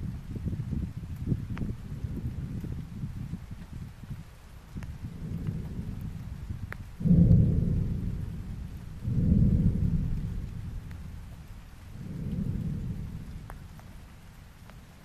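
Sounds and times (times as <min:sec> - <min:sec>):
steady low hiss: 0:00.0 - 0:15.0
volcano explosion booms: 0:05.0 - 0:14.2.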